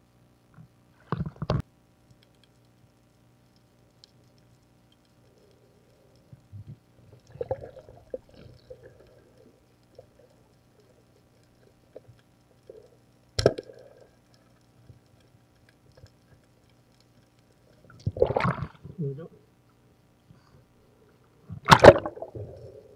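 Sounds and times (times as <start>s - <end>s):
underwater water movement: 3.5s - 19.0s, 21.4s - 22.9s.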